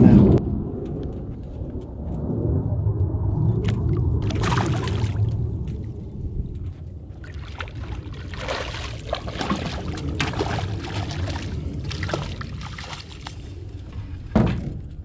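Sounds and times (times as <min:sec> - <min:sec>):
steady low rumble: 0:00.0 - 0:15.0
fish splashing at the surface: 0:03.6 - 0:05.4, 0:07.2 - 0:13.4.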